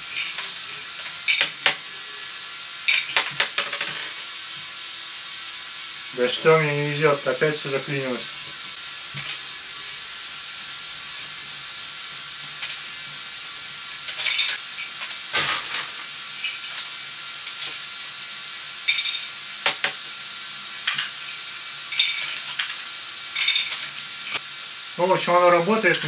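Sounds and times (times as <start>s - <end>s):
toy motor whirring: 0.0s - 10.2s.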